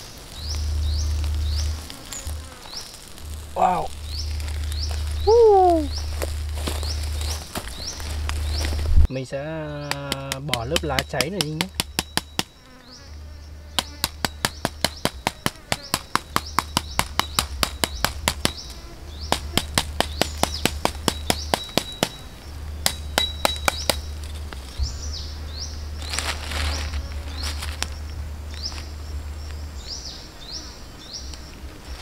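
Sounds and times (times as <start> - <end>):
chicken crackling on grill: 0.0 - 9.1, 13.8 - 24.8.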